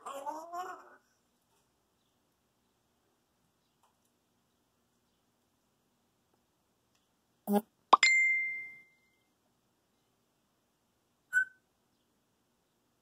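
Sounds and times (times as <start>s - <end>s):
ringing ding: 8.0s - 9.1s
parrot call: 11.3s - 11.6s.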